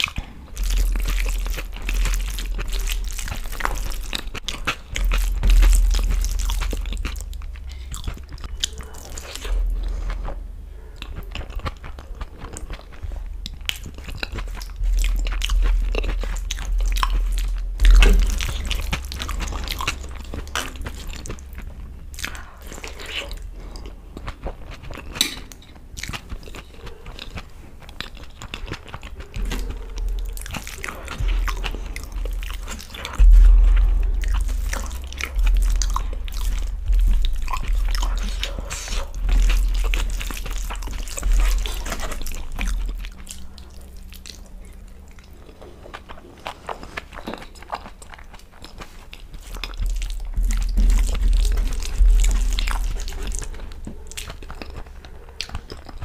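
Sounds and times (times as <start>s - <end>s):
lip smacks: 0.0s - 56.0s
wet chewing: 0.0s - 56.0s
low thumps: 0.2s - 10.8s, 13.0s - 24.6s, 29.3s - 45.2s, 49.8s - 54.6s.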